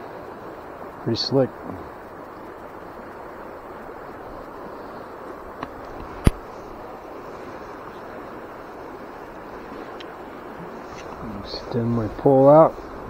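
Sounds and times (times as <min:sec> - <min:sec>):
river flowing: 0:00.0 - 0:13.0
wind: 0:00.0 - 0:13.0.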